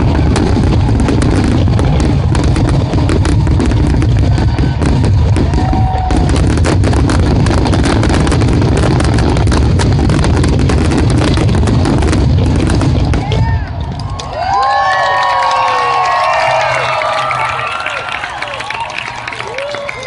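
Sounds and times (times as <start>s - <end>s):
deep rumble: 0.0s - 14.5s
fireworks bursting: 0.0s - 14.5s.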